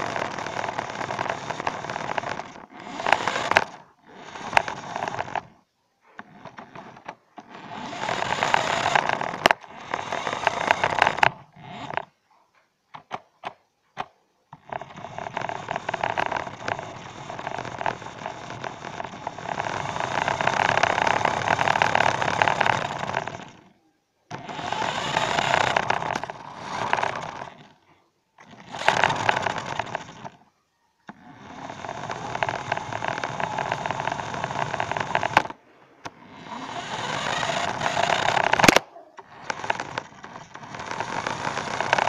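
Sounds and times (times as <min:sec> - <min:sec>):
clicks: 0:00.0 - 0:05.5, 0:24.3 - 0:42.0
remote-control car rattling over tiles: 0:00.0 - 0:05.5, 0:06.2 - 0:12.1, 0:13.0 - 0:30.5, 0:31.1 - 0:42.0.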